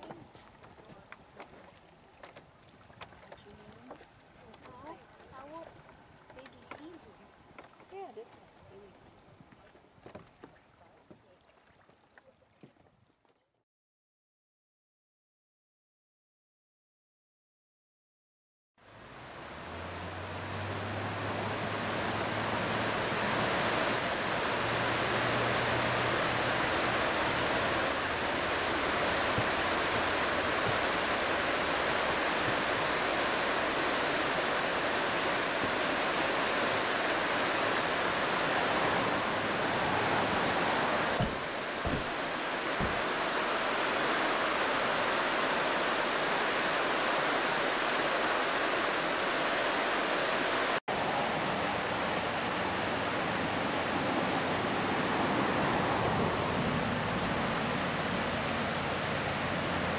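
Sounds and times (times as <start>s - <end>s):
fast river rushing: 18.8s - 59.9s
water spilling down: 19.6s - 49.4s.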